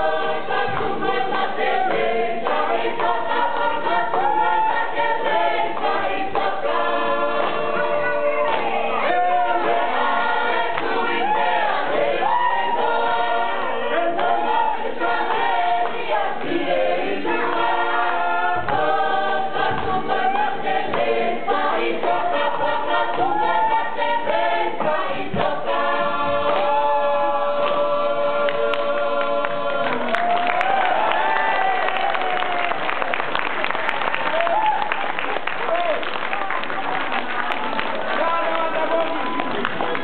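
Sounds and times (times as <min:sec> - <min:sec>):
choir singing in parts: 0:00.0 - 0:32.0.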